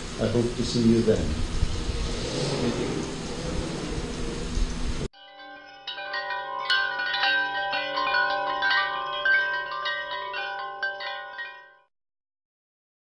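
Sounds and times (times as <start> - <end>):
wind chimes tinkling: 5.1 - 11.9.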